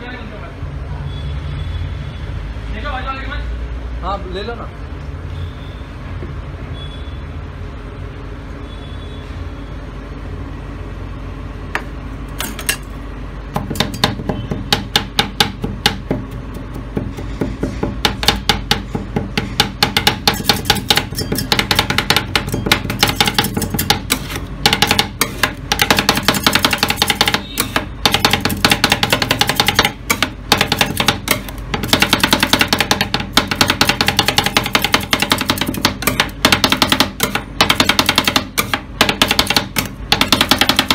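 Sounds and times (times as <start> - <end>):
metal spatulas chopping on steel: 13.6 - 40.9.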